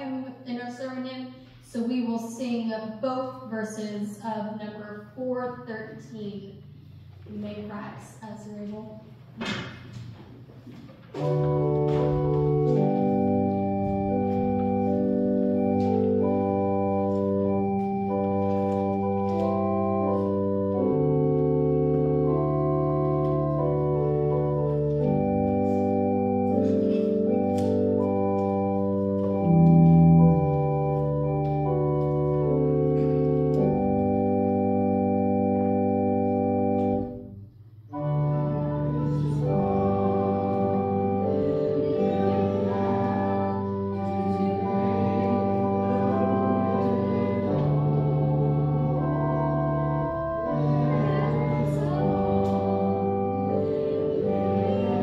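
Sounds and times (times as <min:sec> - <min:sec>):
church organ playing chords: 0:11.0 - 0:55.0.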